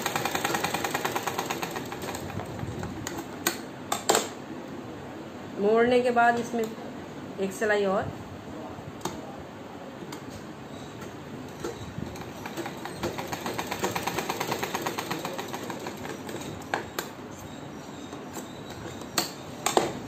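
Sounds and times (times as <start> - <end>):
sewing machine clatter: 0.0 - 3.2, 11.6 - 16.7.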